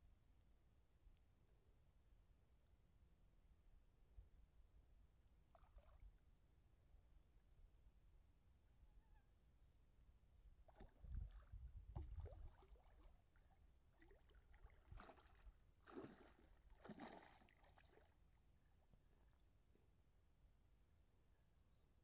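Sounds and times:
fish splashing at water surface: 0:10.7 - 0:18.1.

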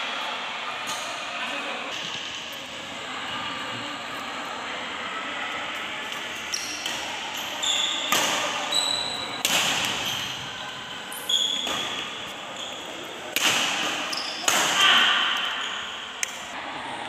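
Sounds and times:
shoes squeaking on court: 0:06.4 - 0:13.2, 0:13.8 - 0:14.5
badminton racket hitting shuttlecock: 0:08.0 - 0:08.7, 0:09.4 - 0:10.5, 0:13.3 - 0:15.6.

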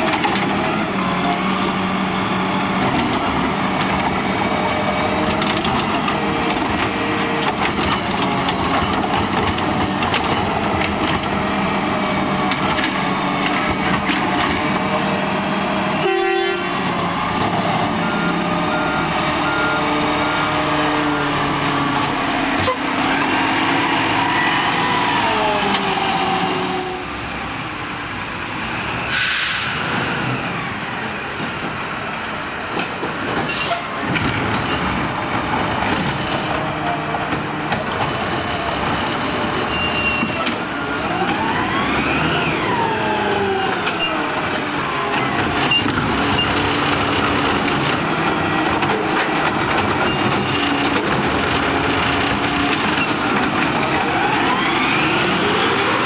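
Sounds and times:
hydraulic whine: 0:54.1 - 0:56.0.

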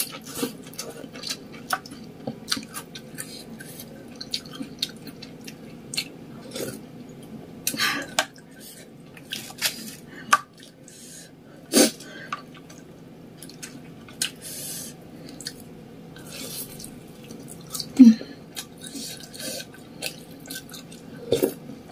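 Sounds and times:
chewing: 0:00.0 - 0:06.8, 0:15.3 - 0:21.6.

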